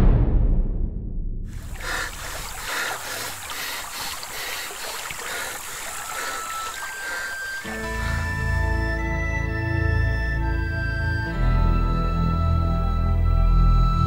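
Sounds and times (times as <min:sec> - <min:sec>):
deep impact rumble: 0:00.0 - 0:01.8.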